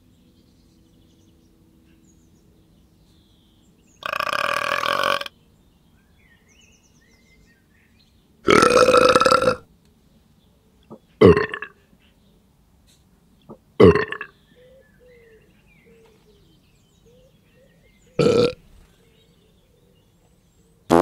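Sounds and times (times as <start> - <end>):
loud deep burps: 4.0 - 5.3, 8.4 - 9.6, 11.2 - 11.8, 13.8 - 14.3, 18.2 - 18.6.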